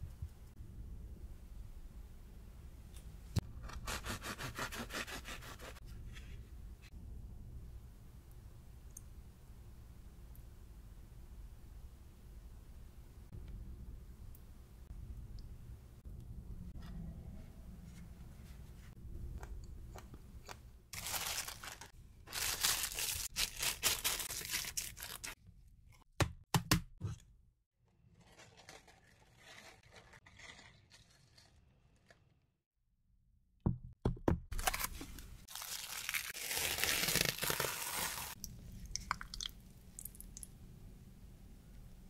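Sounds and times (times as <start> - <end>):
plastic film crinkling: 21.0 - 25.4, 28.0 - 32.3, 34.6 - 38.4.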